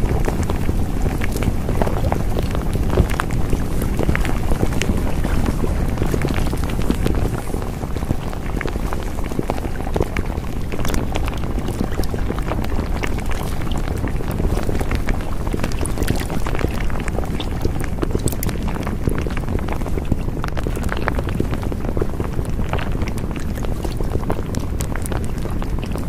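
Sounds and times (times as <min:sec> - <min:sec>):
crackles and pops: 0:00.0 - 0:26.0.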